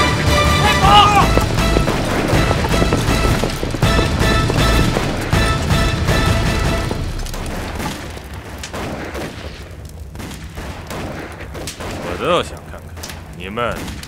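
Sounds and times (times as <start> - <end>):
dramatic orchestral score: 0.0 - 9.2
booming explosions: 0.2 - 14.0
gunfire: 1.1 - 14.0.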